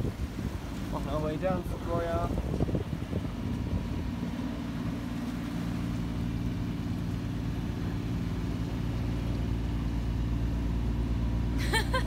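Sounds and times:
wind noise: 0.0s - 4.4s
boat engine droning: 0.0s - 12.0s
water noise: 0.0s - 12.0s.

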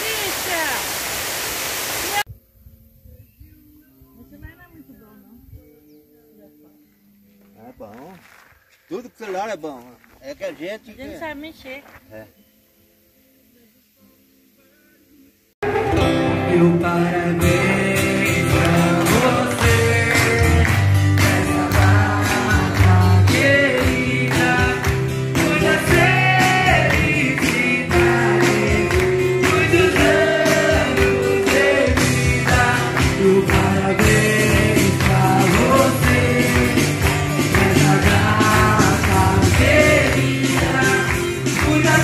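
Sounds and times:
strummed acoustic guitars: 15.6s - 42.0s
percussion beat: 17.4s - 42.0s.

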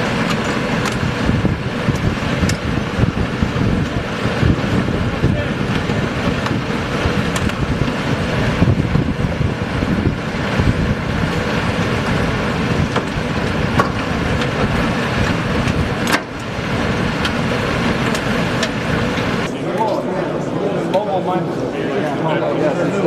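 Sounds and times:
diesel engine rumbling: 0.0s - 19.6s.

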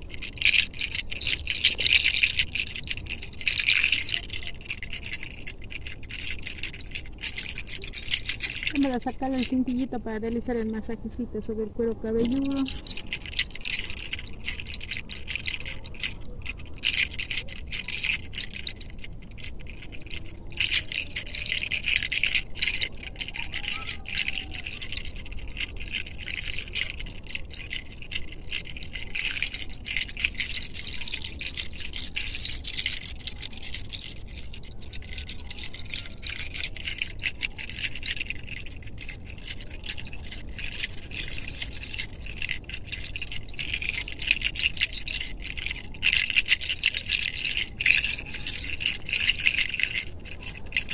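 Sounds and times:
low wind rumble: 0.0s - 21.2s, 22.0s - 50.9s
fingertips rubbing through hair: 11.9s - 50.9s.

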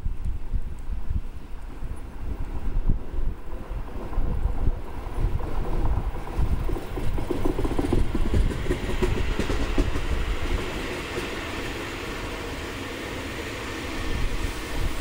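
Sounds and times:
low rumble of train wheels: 0.0s - 15.0s
electric train passing: 0.4s - 15.0s
high hiss of passing cars: 10.0s - 15.0s.

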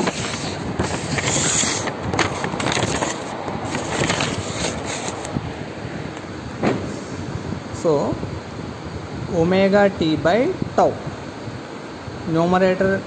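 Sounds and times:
camera handling noise: 0.0s - 5.4s.

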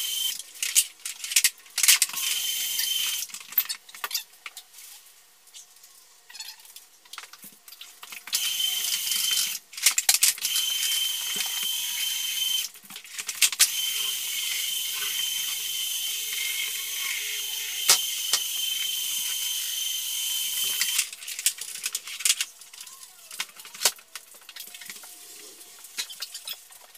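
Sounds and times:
power tool high-pitched whine: 0.0s - 0.4s, 2.2s - 3.2s, 8.3s - 9.6s, 10.4s - 12.7s, 13.6s - 21.1s.

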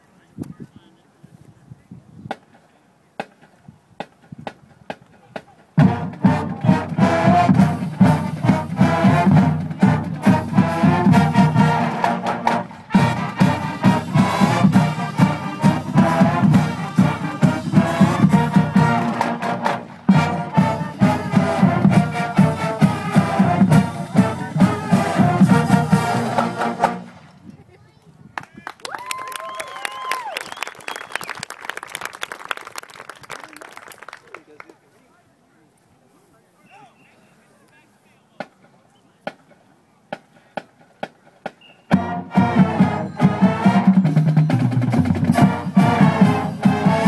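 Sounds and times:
marching band playing: 3.2s - 27.4s, 38.4s - 47.0s.

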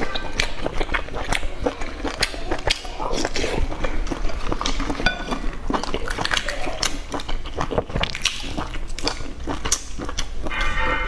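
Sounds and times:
wet chewing: 0.0s - 11.0s.

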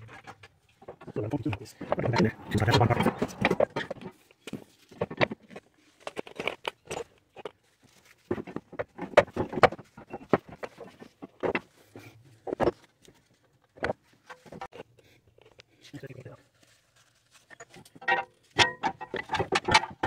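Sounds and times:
hand tools and metal parts clinking: 0.0s - 11.7s, 17.3s - 20.0s.

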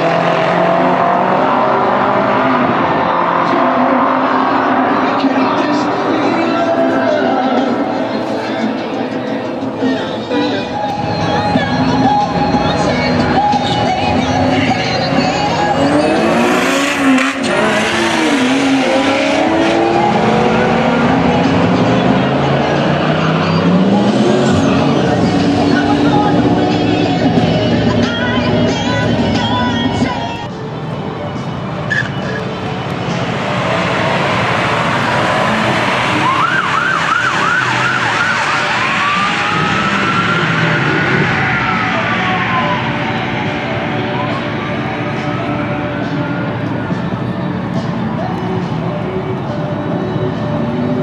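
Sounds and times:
car engines revving: 0.0s - 51.0s
electronic siren yelping and wailing: 35.4s - 46.3s.

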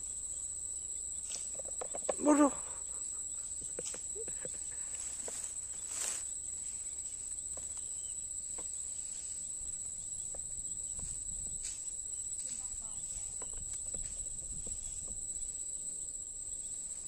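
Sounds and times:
insects chirring: 0.0s - 17.0s.

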